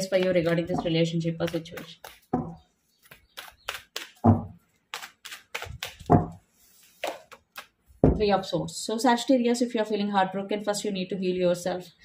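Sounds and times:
cards being shuffled: 0.0s - 7.8s.

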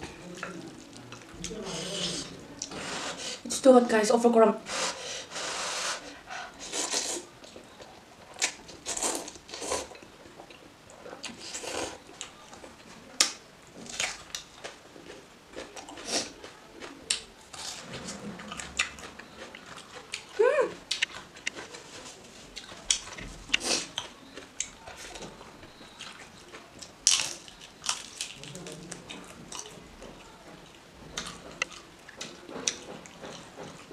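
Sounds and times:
noodles slurped and chewed: 5.4s - 7.3s
crunchy onion bites: 26.5s - 29.8s.

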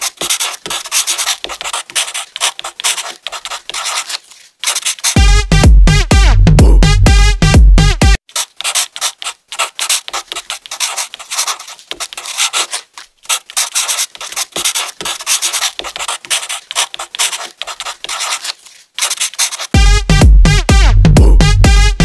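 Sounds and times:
marker scratching on paper: 0.0s - 5.2s, 8.2s - 19.8s.

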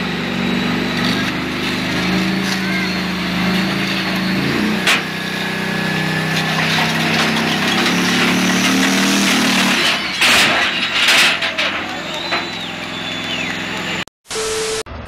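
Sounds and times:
tank engine under load: 0.0s - 14.1s
tank tracks clattering: 6.2s - 13.7s.

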